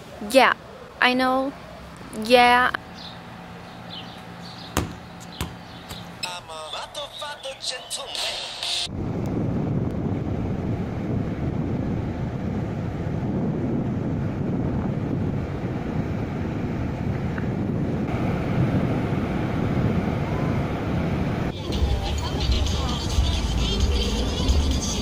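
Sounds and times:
wind buffeting microphone: 8.9s - 25.0s.

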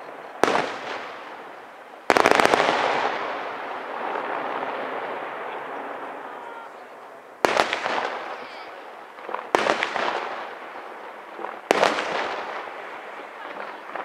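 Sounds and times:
firework bangs: 0.0s - 14.0s
firework crackling: 0.0s - 14.0s.

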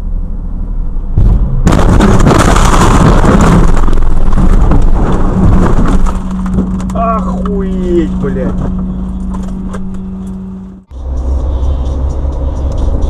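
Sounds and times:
car crash: 1.1s - 9.8s
crunching and rattling: 1.6s - 10.5s.

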